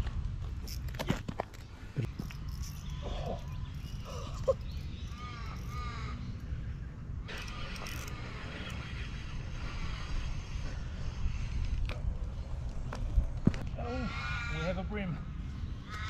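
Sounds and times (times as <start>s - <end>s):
wind rumble on microphone: 0.0s - 14.5s
crow cawing: 5.1s - 6.4s, 13.8s - 15.2s.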